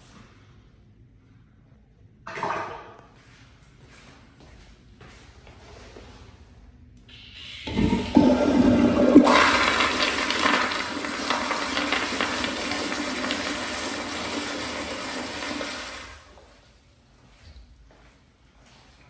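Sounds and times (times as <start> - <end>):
toilet flushing: 7.1 - 16.7.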